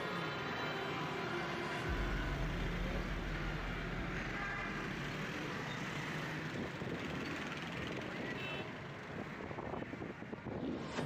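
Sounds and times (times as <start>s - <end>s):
vehicle engine and road noise: 0.2s - 11.0s
heavy low rumble: 1.9s - 7.2s.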